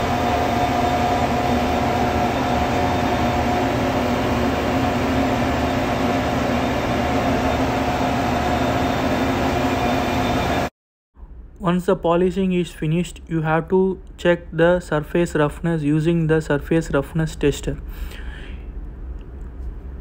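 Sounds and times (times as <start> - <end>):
engine-room machinery din: 0.0 - 11.6.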